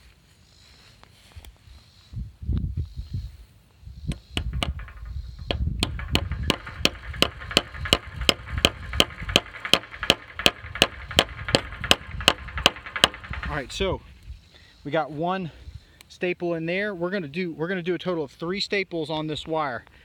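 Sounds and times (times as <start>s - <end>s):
hammer striking fence staple: 4.1s - 13.8s.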